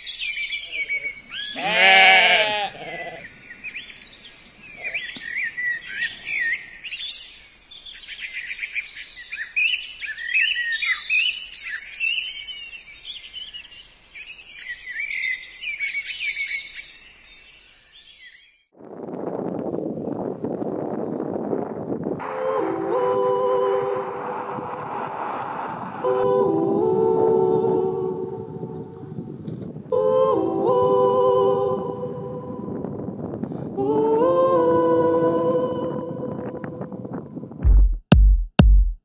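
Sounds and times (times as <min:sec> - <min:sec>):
songbirds chirping: 0:00.1 - 0:18.6
sheep bleating: 0:01.5 - 0:03.3.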